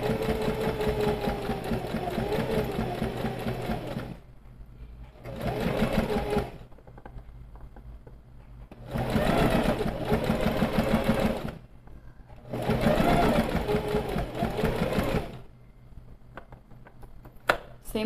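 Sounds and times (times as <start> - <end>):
sewing machine stitching: 0.0 - 4.2, 5.1 - 6.7, 8.7 - 11.6, 12.4 - 15.5.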